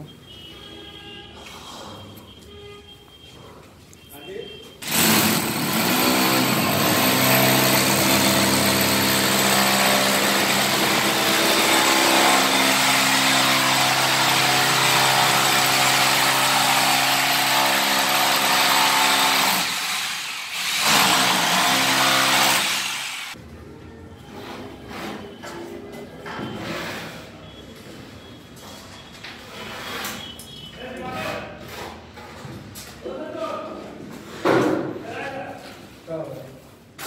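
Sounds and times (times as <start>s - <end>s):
power tool motor running: 4.8s - 23.4s.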